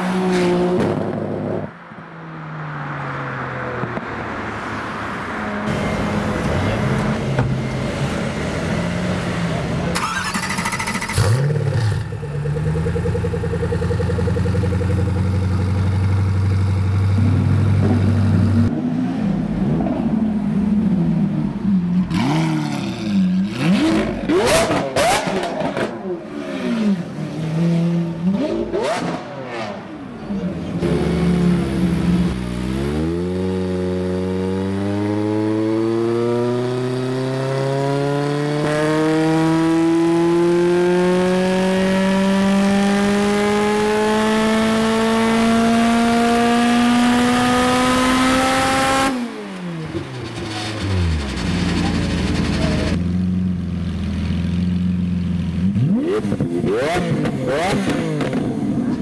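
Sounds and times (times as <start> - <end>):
race car engine full-throttle pull: 9.9 - 14.9, 46.8 - 53.0, 55.6 - 59.0
sports car engine revving: 22.0 - 53.2, 55.5 - 59.0.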